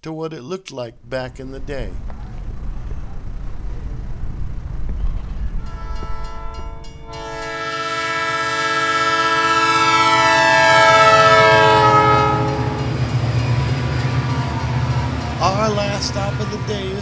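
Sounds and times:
low rumble of train: 1.0 - 17.0
train horn blast: 5.6 - 17.0.

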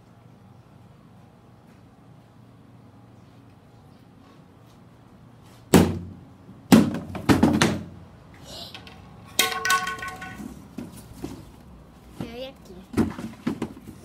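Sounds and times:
stick whacking cardboard box: 5.7 - 7.9.

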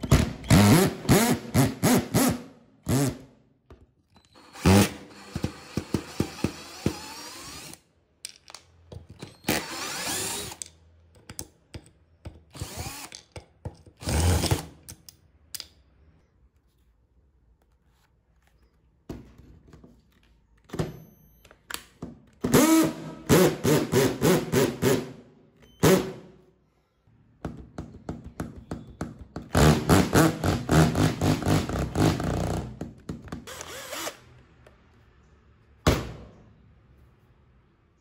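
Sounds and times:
cordless drill running in bursts: 4.5 - 7.8, 9.5 - 10.6, 12.6 - 13.1, 33.5 - 34.2.

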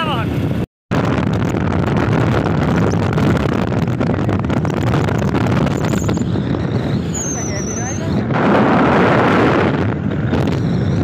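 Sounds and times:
motorbike road noise: 0.0 - 11.0
wind rushing over microphone: 0.0 - 11.0.

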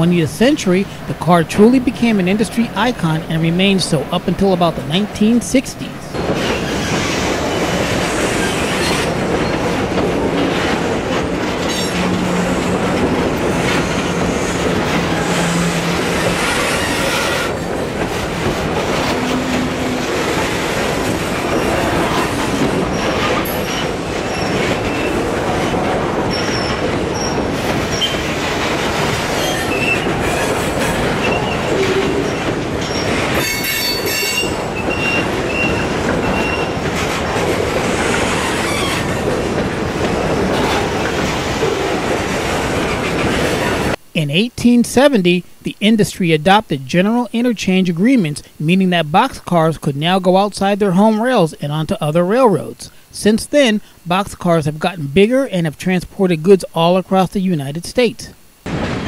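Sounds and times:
train wheels rumbling on rails: 0.0 - 44.0
high-pitched wheel squeals: 31.2 - 36.8.

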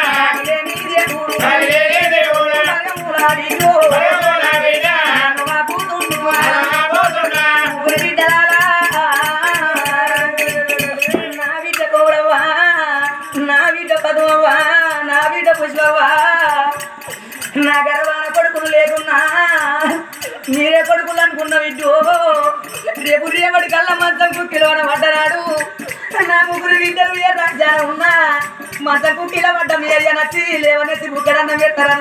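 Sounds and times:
men singing folk ballad: 0.0 - 9.3
hand-played barrel drum: 0.0 - 32.0.

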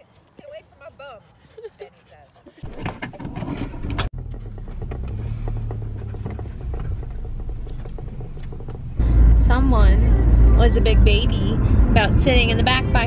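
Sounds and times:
road noise: 0.0 - 13.0
car engine rumble: 2.6 - 13.0.

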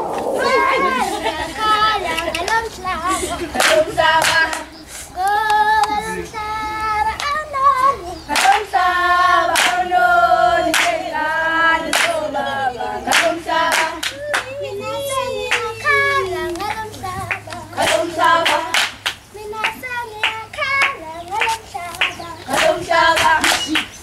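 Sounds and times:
children's choir singing: 0.0 - 24.0
hand claps: 3.6 - 6.0, 7.2 - 7.4, 8.3 - 8.7, 9.5 - 9.8, 10.7 - 11.0, 11.9 - 12.2, 13.1 - 14.6, 15.5 - 15.7, 16.5 - 24.0.

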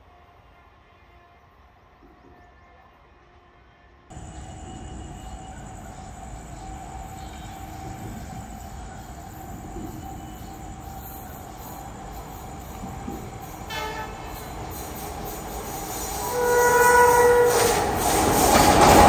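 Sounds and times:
electric train rumble: 4.1 - 19.0
train horn: 13.7 - 14.6, 16.1 - 18.3.

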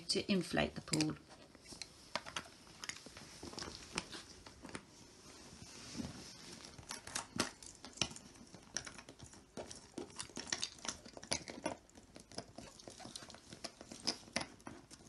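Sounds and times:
vinyl rustling: 1.4 - 8.7.

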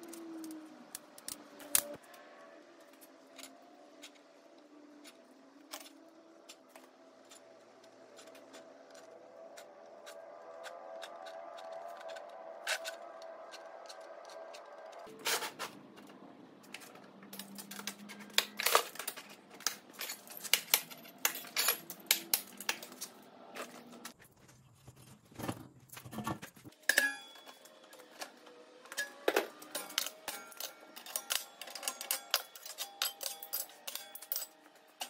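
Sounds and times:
metallic clicks and clanks: 11.0 - 23.2, 25.9 - 35.0.

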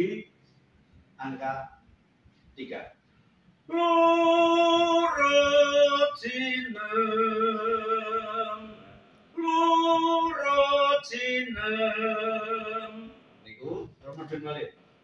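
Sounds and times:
man singing sustained notes: 3.7 - 13.2.

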